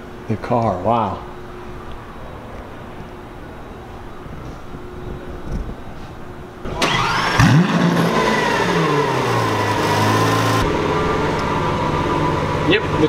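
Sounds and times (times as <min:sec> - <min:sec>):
car engine starting and idling: 0:06.6 - 0:13.0.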